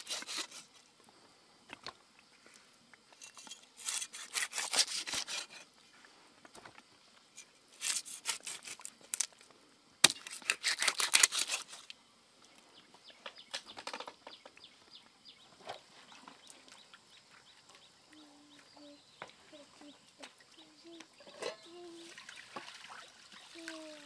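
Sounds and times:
quick rasping strokes: 3.8s - 5.6s.

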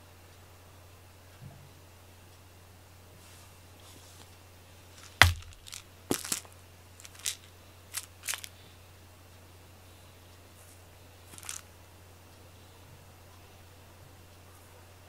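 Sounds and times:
cat toy rustling clicks: 5.0s - 8.5s, 11.3s - 11.6s
sharp knock: 5.2s - 5.6s.

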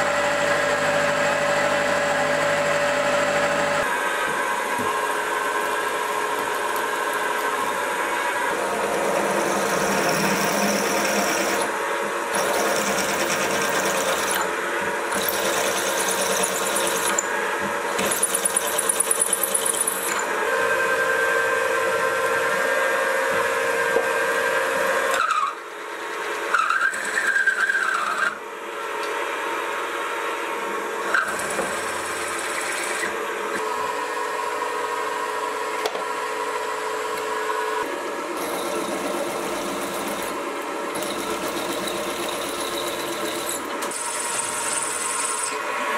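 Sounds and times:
milling machine drilling metal: 0.0s - 22.6s, 31.1s - 34.2s, 38.4s - 45.9s.

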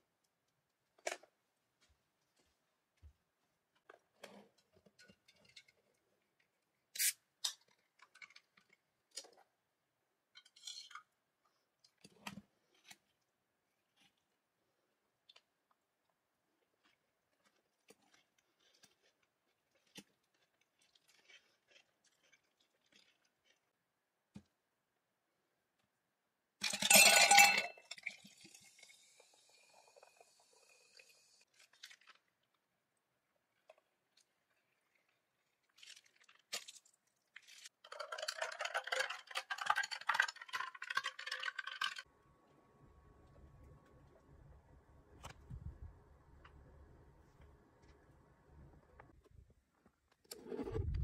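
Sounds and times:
metal straw stirring ice: 26.6s - 28.6s, 34.5s - 42.1s
clink and clatter against glass: 26.7s - 27.9s
drink poured over ice: 37.8s - 42.1s.

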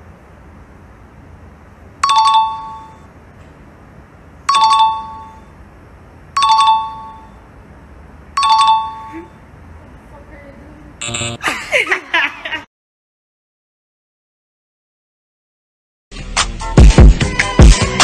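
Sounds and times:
two-note electronic chime: 11.0s - 11.4s.

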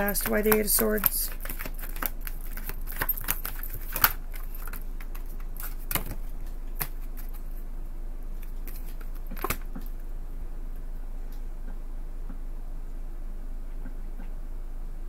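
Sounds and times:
cards being shuffled: 0.0s - 7.6s, 8.4s - 9.8s.

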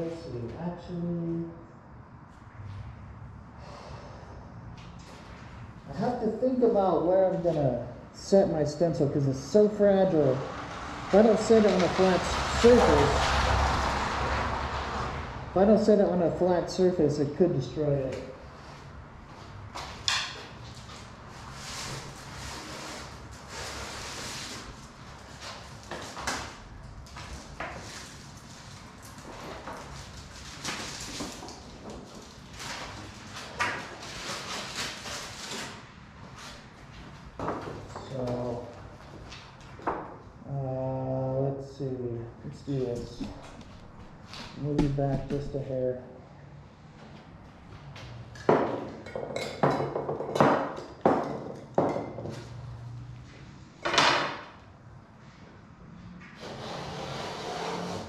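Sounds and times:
man's low voice: 44.6s - 46.1s.

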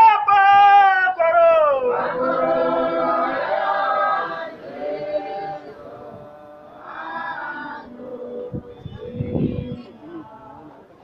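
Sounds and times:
congregation singing unaccompanied: 0.6s - 11.0s.

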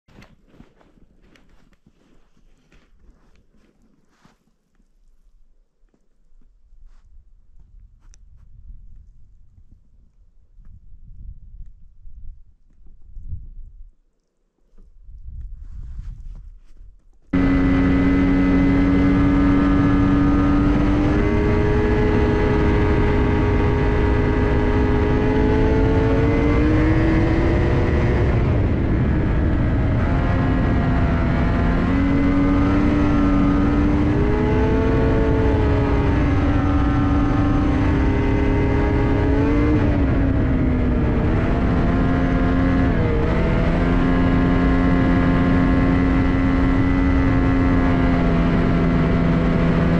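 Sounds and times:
snowmobile engine running: 17.3s - 49.9s.

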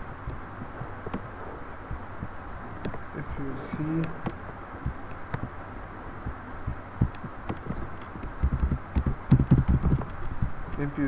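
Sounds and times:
steady background hiss: 0.0s - 11.0s
keyboard keystroke thumps: 4.0s - 5.6s, 6.3s - 10.2s.

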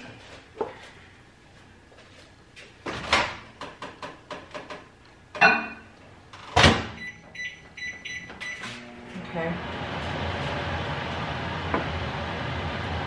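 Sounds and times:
keypad beeps: 7.0s - 8.6s.

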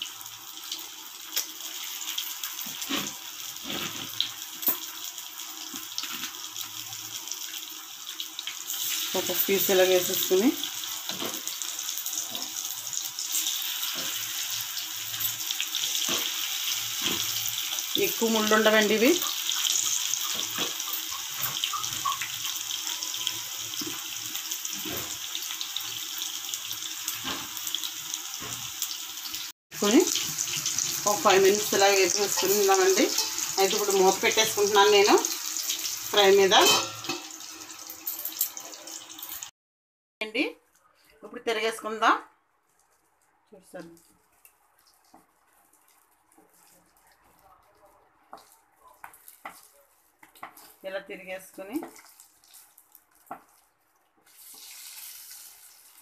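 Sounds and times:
fish sizzling in hot oil: 0.0s - 39.5s, 48.3s - 56.0s
oil crackling and popping: 0.7s - 7.4s, 10.7s - 18.1s, 19.0s - 29.1s, 48.3s - 50.8s, 51.7s - 56.0s.

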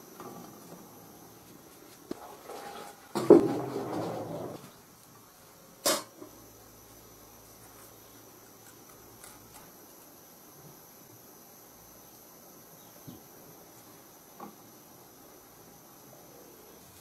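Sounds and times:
faint high-pitched hum: 0.0s - 17.0s
faint handling sounds: 7.3s - 10.2s.

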